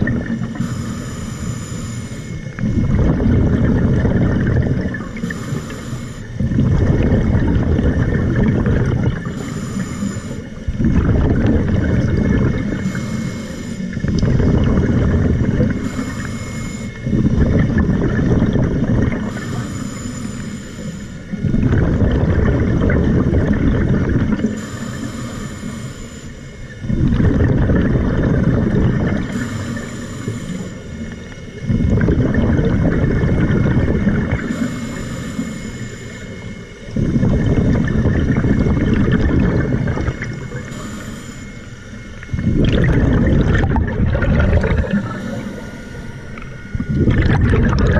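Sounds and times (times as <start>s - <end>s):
bubbling exhale underwater: 0.0s - 1.2s, 2.6s - 20.2s, 20.8s - 25.1s, 26.8s - 35.5s, 36.2s - 41.5s, 42.3s - 47.9s
regulator hissing inhale: 0.5s - 2.5s, 5.2s - 6.4s, 9.2s - 10.7s, 12.8s - 14.0s, 15.6s - 17.1s, 19.2s - 21.4s, 24.6s - 26.5s, 29.2s - 31.1s, 34.5s - 36.5s, 40.2s - 41.9s, 44.8s - 46.5s.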